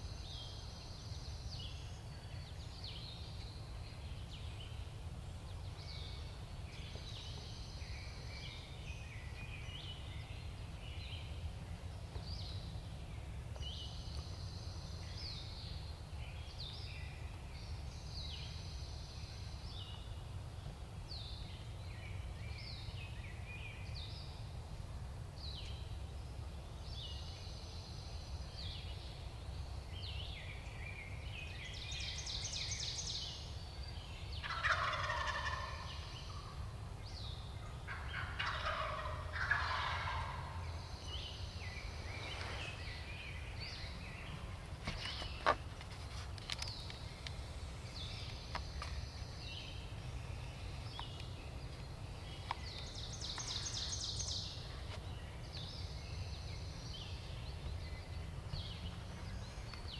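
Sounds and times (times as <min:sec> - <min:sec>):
songbirds chirping: 0:00.0 - 0:59.9
turkey gobbling: 0:34.4 - 0:36.5, 0:37.9 - 0:40.6.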